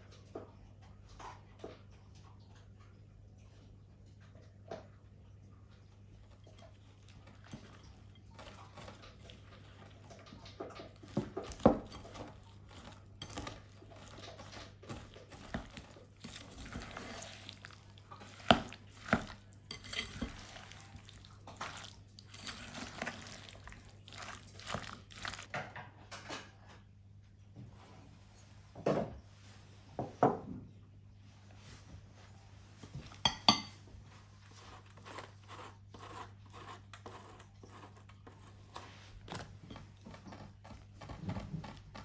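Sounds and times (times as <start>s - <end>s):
utensils and dishes clinking: 6.3s - 26.6s, 33.2s - 33.8s
scraping of dishes: 10.8s - 21.8s.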